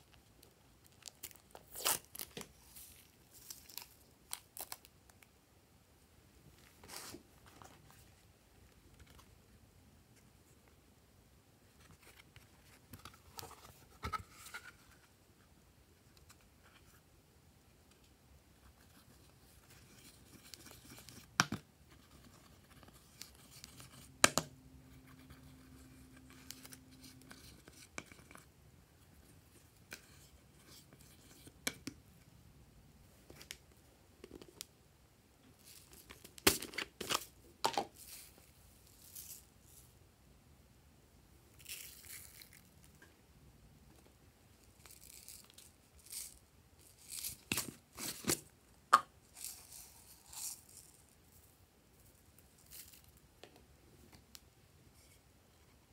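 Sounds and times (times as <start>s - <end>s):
plastic containers handled: 35.6s - 38.4s.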